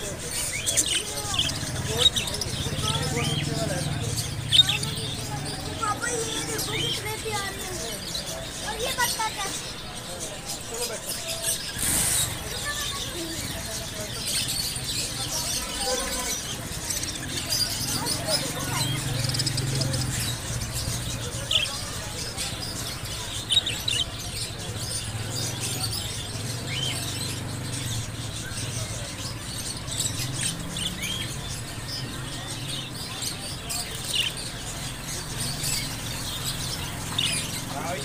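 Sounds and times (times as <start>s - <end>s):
background murmur: 0.0s - 38.0s
budgerigars chirping: 0.0s - 38.0s.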